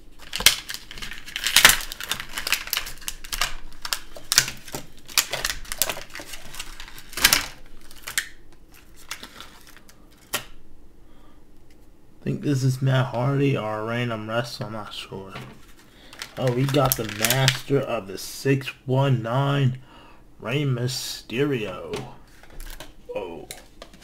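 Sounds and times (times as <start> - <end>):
packaging crackling and rustling: 0.0 - 10.6, 15.3 - 17.8, 22.0 - 24.0
packaging snapping: 0.2 - 10.6, 15.4 - 17.7.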